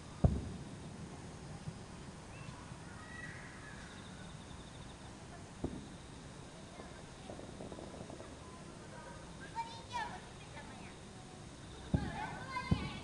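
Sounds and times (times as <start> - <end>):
distant firework shells bursting: 0.0 - 2.8, 5.5 - 13.0.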